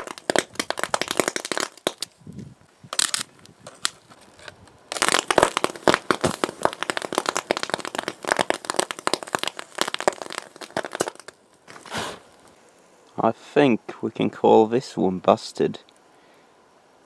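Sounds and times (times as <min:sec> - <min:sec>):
electric arc crackling and popping: 0:00.0 - 0:12.6.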